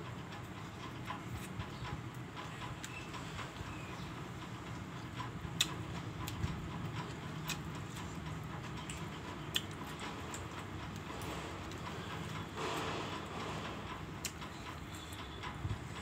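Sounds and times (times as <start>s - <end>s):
steady low hum: 0.0s - 16.0s
sharp clicks and smacks: 5.2s - 12.4s
person chewing: 7.1s - 12.9s.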